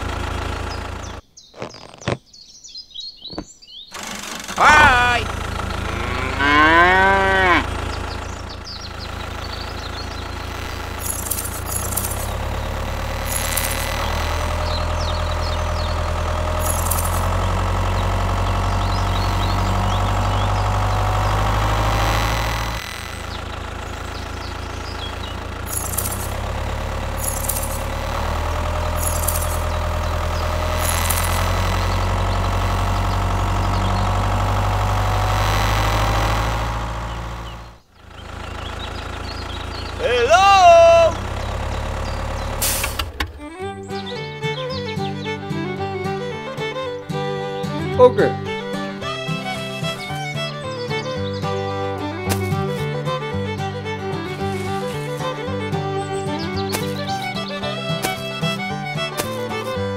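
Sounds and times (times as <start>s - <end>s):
tractor engine running: 0.0s - 2.2s, 3.2s - 59.9s.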